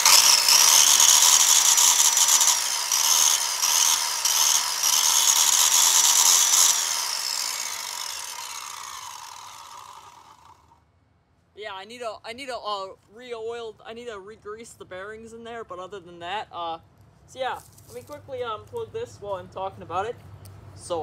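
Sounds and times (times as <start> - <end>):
circular saw whining: 0.0 - 10.8.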